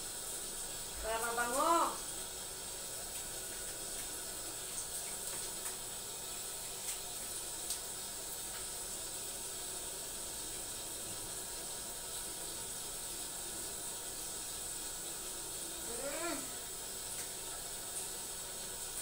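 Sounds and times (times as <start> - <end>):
tap water splashing into sink: 3.0 - 8.9, 16.3 - 18.2.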